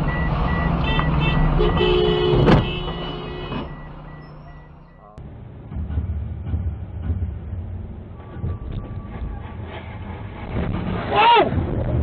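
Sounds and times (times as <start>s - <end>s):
car horn: 0.6s - 5.0s
electronic beeping: 3.0s - 5.2s.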